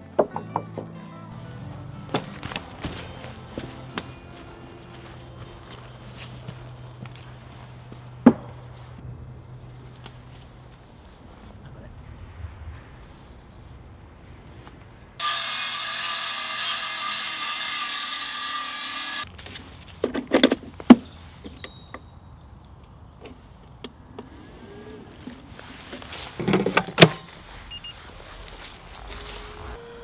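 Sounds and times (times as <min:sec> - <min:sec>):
power tool motor running: 0:15.2 - 0:19.3.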